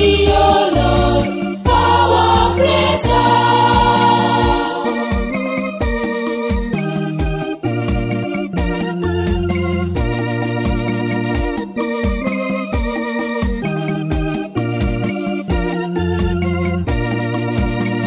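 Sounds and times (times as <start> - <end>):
electronic organ with bass and beat: 0.0 - 18.0.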